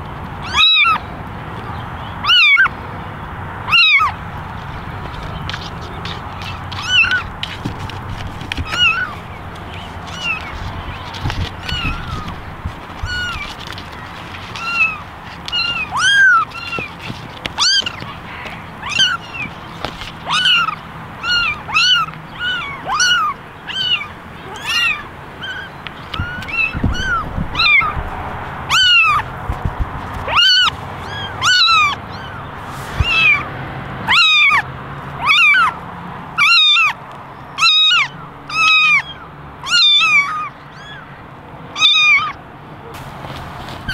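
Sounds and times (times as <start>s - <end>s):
kittens meowing: 0.4s - 1.1s, 2.2s - 2.7s, 3.6s - 4.2s, 5.1s - 29.3s, 30.2s - 35.8s, 36.4s - 42.4s.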